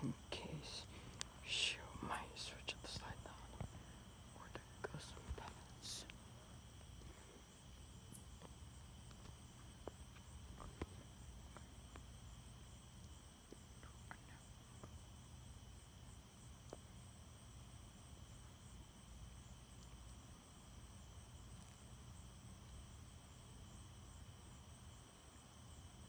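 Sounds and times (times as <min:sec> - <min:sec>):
crickets trilling: 0:00.0 - 0:26.0
faint clicks: 0:01.1 - 0:01.4.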